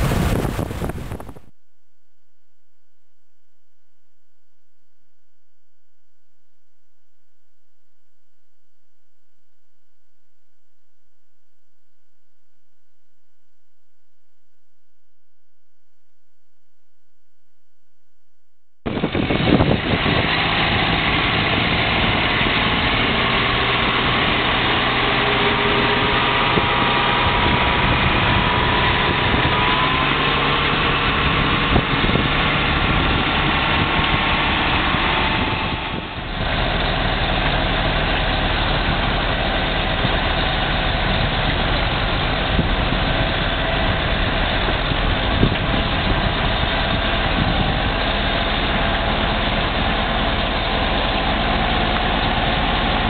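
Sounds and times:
diesel engine running under load: 0.0s - 1.4s, 18.9s - 53.0s.

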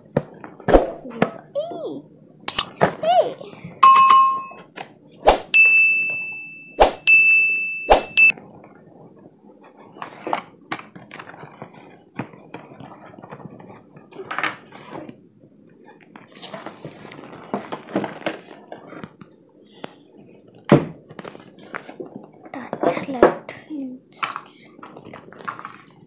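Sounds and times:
cardboard rustling and scraping: 16.2s - 19.1s.

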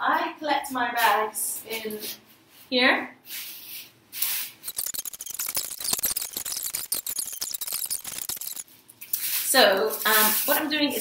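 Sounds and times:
plastic bags crinkling: 4.7s - 8.6s.

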